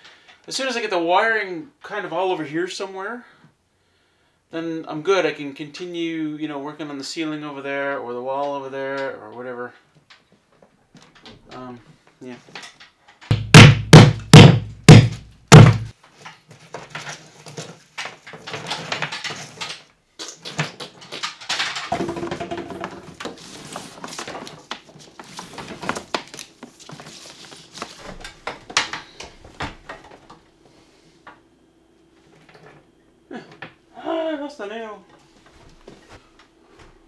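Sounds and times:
hammer blows on wood: 13.3s - 15.9s
cable rustling and clicking: 16.0s - 22.0s.

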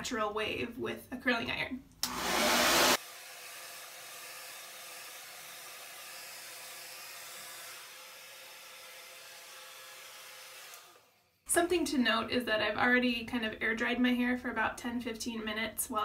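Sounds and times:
hair dryer blowing: 2.0s - 11.2s.

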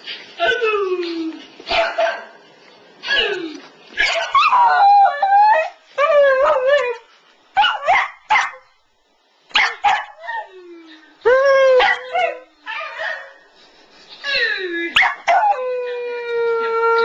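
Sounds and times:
dog howling and yipping: 4.0s - 7.0s, 11.3s - 13.4s, 14.9s - 17.0s.

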